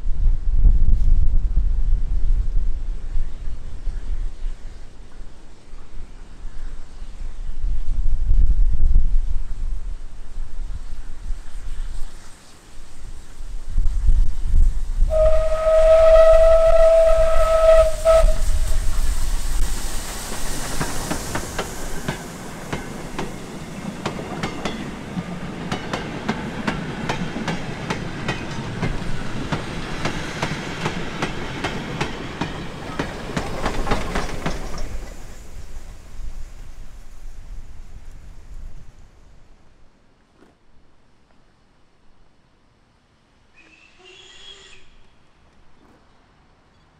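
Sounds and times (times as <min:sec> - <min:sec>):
steam locomotive whistle: 0:15.1 - 0:18.9, 0:43.5 - 0:45.1
wagon wheels clicking over rail joints: 0:20.7 - 0:35.3.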